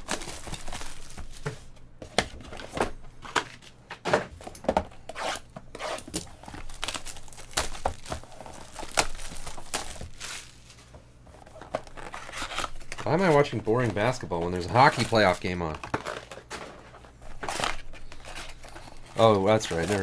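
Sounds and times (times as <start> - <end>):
wrappers tearing and crinkling: 0.0 - 1.5, 5.8 - 16.5, 17.2 - 20.0.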